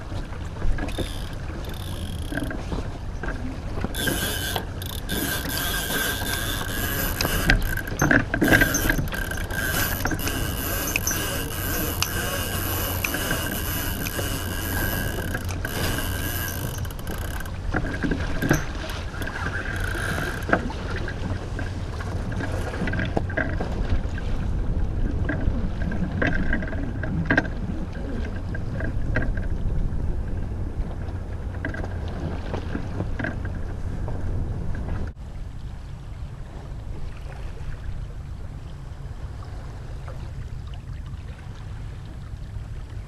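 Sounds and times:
water rushing along hull: 0:00.0 - 0:43.0
wind rumble on microphone: 0:00.0 - 0:43.0
light clicks and knocks: 0:00.7 - 0:20.7.

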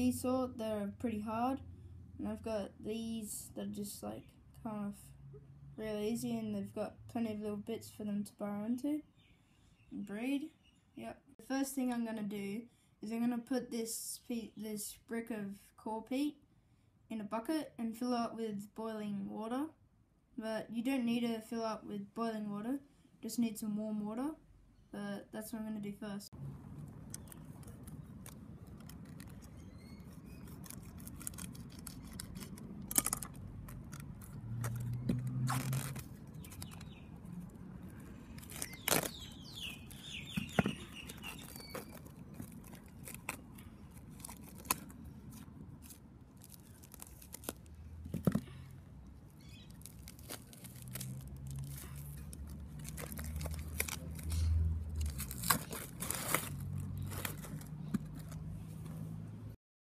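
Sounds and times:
plastic film crinkling and tearing: 0:26.9 - 0:48.4, 0:49.4 - 0:58.4
knife slitting plastic: 0:27.3 - 0:36.9, 0:55.0 - 0:58.4.

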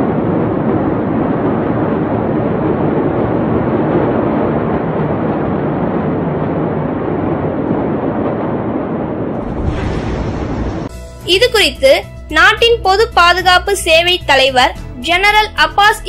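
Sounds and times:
rushing roar of fire: 0:00.0 - 0:11.4.

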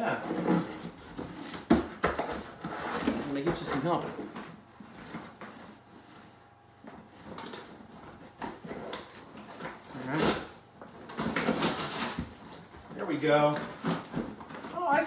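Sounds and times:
cardboard box rustling and scraping: 0:00.1 - 0:06.4.

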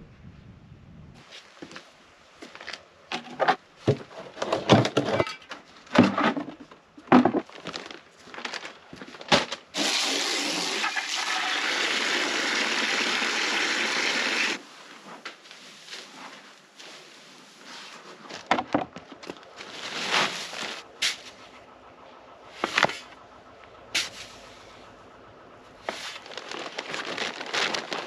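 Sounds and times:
knocks clatters and scrapes: 0:03.1 - 0:09.7.

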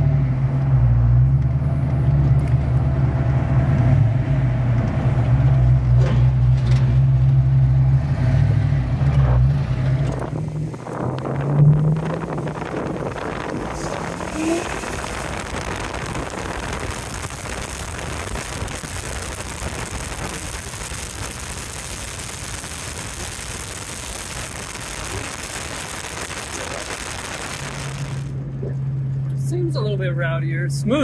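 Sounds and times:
wind buffeting microphone: 0:09.6 - 0:28.4.

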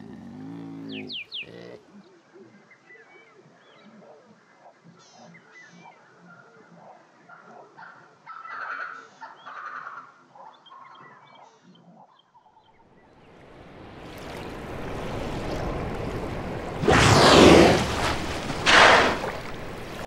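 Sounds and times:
rushing water: 0:13.2 - 0:20.0.

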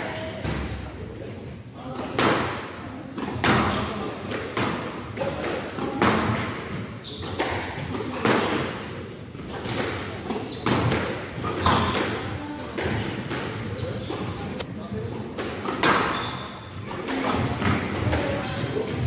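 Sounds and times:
squash ball struck by rackets: 0:02.0 - 0:13.8, 0:15.3 - 0:19.0.

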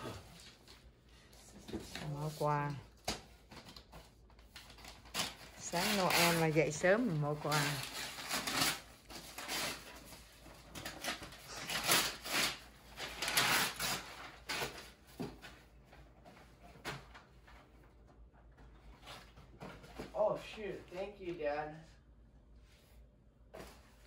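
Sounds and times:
wrapping paper tearing and crinkling: 0:01.6 - 0:15.1.

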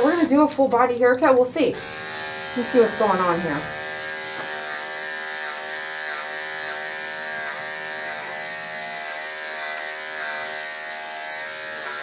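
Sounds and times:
electric dog clippers humming: 0:00.0 - 0:00.6, 0:01.3 - 0:12.0.

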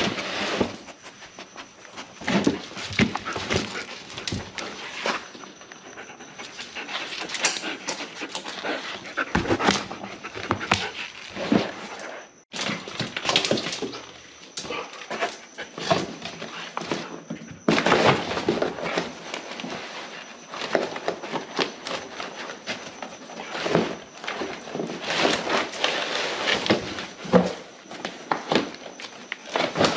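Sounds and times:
dog panting: 0:05.6 - 0:11.2.

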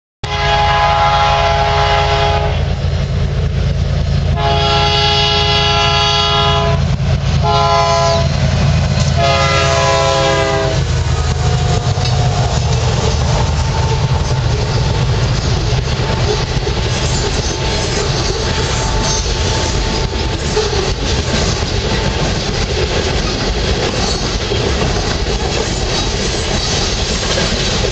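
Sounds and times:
train horn: 0:00.2 - 0:02.8, 0:04.3 - 0:08.4, 0:09.1 - 0:15.2, 0:17.4 - 0:20.5
diesel locomotives passing: 0:00.2 - 0:27.9
train wheels clattering over rails: 0:06.8 - 0:27.9.

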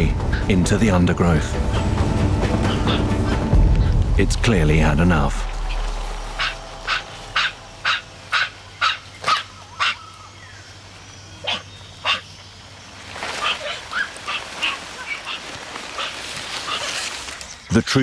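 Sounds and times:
macaques barking calls: 0:01.7 - 0:03.5, 0:05.8 - 0:12.5, 0:13.2 - 0:17.3.

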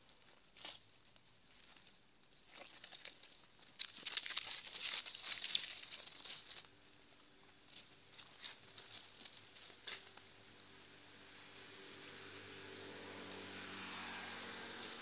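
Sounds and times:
rustling of dry leaves: 0:00.0 - 0:15.0
monkey squealing: 0:04.8 - 0:05.6.

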